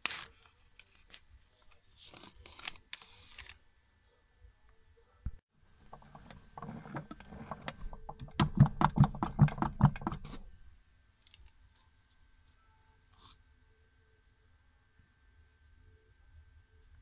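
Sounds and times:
metal shaft clicking and knocking: 0:05.8 - 0:10.5.

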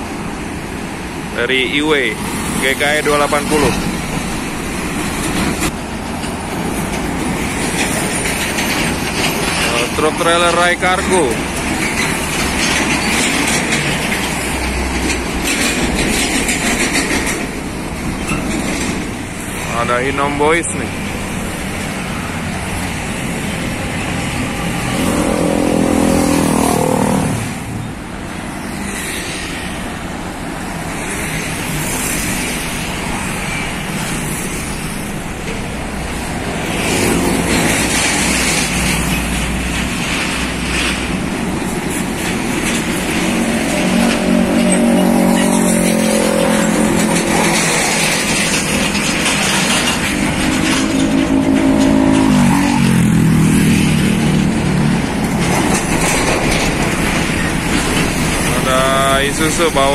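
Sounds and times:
trucks passing: 0:00.0 - 0:59.9
motorcycles passing: 0:18.8 - 0:59.9.

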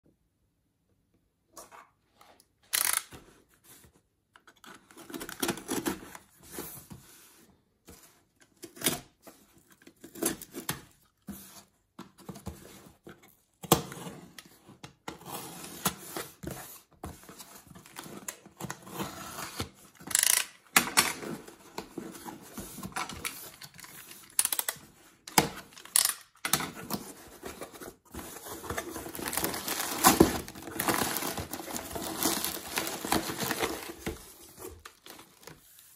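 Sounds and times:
cardboard scraping and tearing: 0:26.9 - 0:35.9
plastic bag crinkling: 0:29.0 - 0:35.5.

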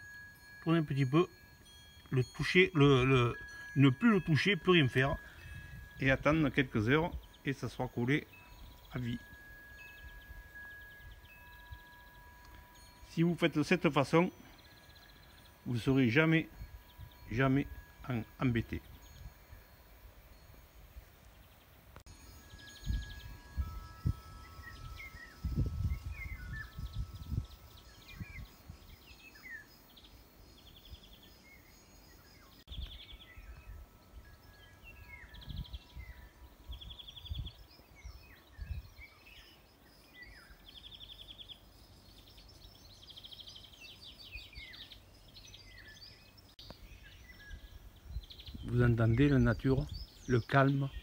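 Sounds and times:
wild birds singing and calling: 0:00.0 - 0:51.0
low rumbling microphone bumps: 0:22.6 - 0:29.0.

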